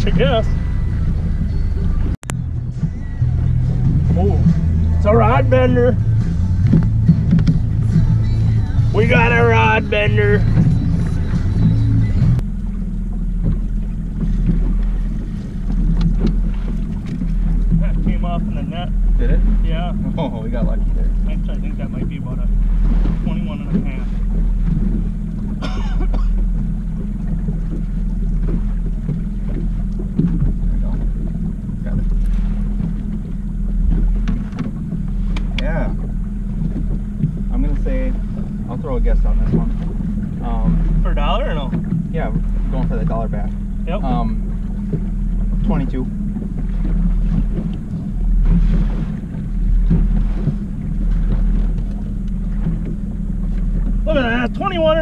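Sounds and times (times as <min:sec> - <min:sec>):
outboard motor running: 0:00.0 - 0:55.0
wind on microphone: 0:00.0 - 0:55.0
person coughing or grunting: 0:25.6 - 0:26.4.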